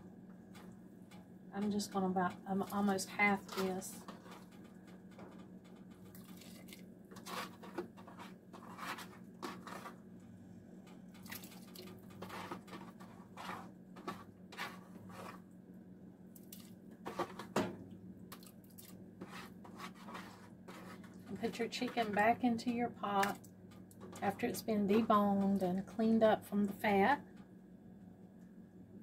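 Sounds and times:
wet squishes and drips: 6.1s - 6.8s, 11.2s - 12.0s, 16.4s - 16.8s, 18.3s - 19.0s.

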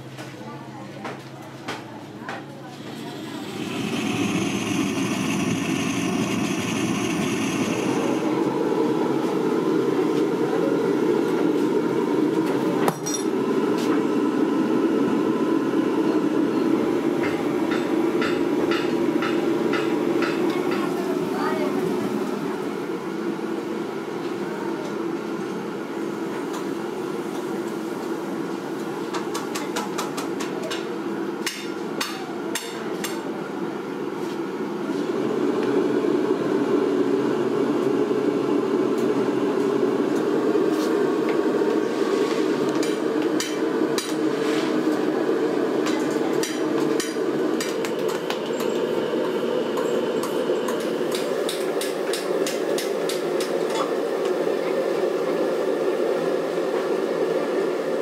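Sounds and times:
steady low hum: 2.6s - 23.5s.

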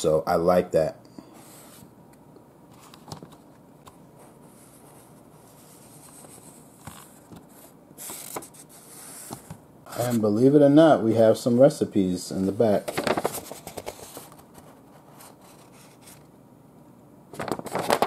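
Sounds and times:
paper pages rustling: 4.5s - 10.2s, 12.4s - 16.3s, 17.4s - 18.0s.

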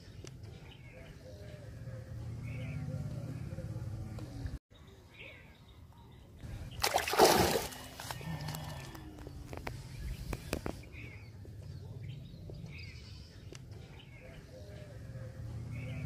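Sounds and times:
fish splashing in water and leaves: 6.7s - 8.9s.

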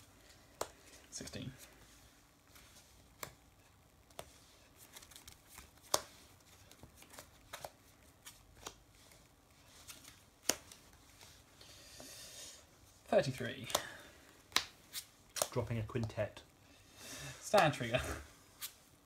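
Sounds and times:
cards clicking and tapping: 0.4s - 0.8s, 3.2s - 3.4s, 4.0s - 8.8s, 9.9s - 11.2s, 13.6s - 13.9s, 14.5s - 16.2s.

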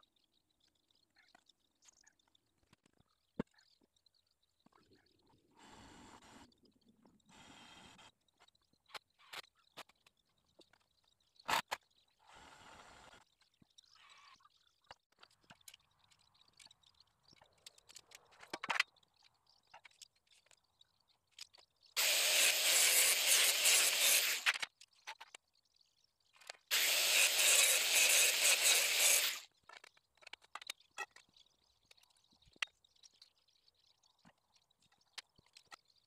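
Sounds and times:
power tool running: 22.0s - 24.5s, 26.7s - 29.4s.

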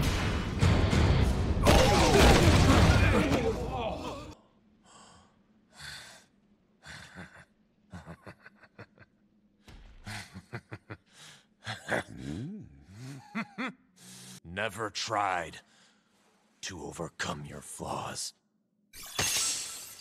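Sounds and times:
heavy breaths and gasps: 14.0s - 14.4s.

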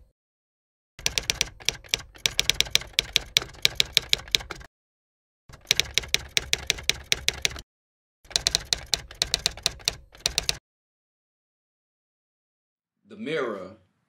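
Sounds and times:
typewriter keys striking: 1.0s - 4.7s, 5.5s - 7.6s, 8.3s - 10.6s.

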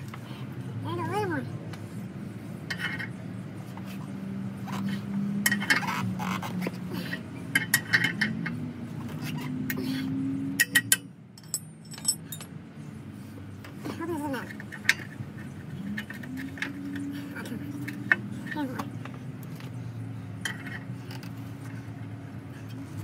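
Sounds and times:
metallic clinks of hand tools: 10.6s - 12.6s.

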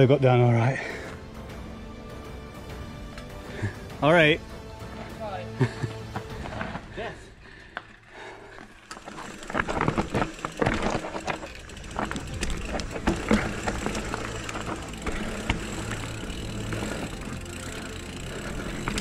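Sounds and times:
tyres over stones and roots: 5.9s - 19.0s
low motor hum: 8.9s - 19.0s.

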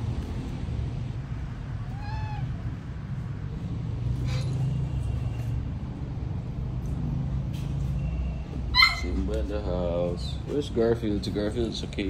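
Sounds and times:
cat meowing: 1.7s - 3.0s.

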